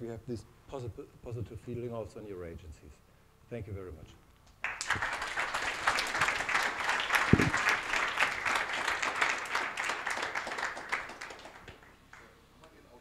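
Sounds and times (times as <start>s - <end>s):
audience applauding: 4.6s - 12.3s.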